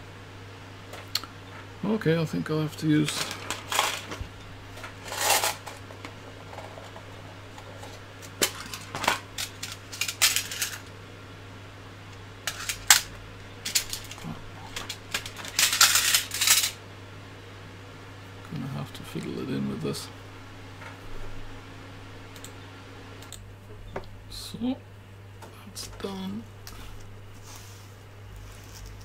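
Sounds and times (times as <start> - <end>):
small parts clattering in plastic tray: 3.0 - 4.2, 4.8 - 7.0, 7.8 - 10.9, 12.5 - 16.8.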